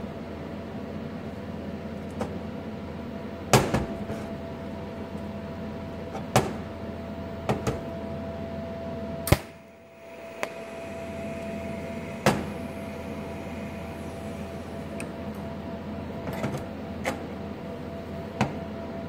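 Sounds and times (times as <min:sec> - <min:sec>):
welding machine hum: 0:09.1 - 0:16.3.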